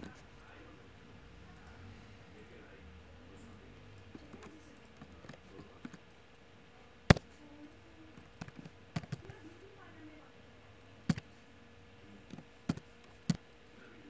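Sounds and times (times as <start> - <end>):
computer keyboard keystrokes: 8.3 - 9.3.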